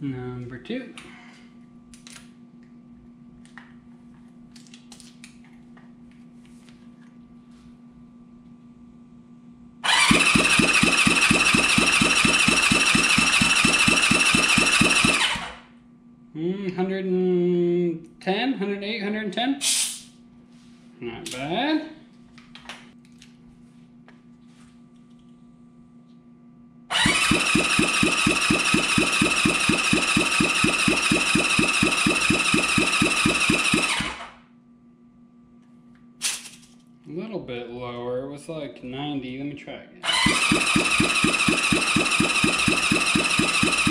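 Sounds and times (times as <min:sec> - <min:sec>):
electric starter cranking engine: 0:09.8 - 0:15.7, 0:26.9 - 0:34.4, 0:40.0 - 0:43.9.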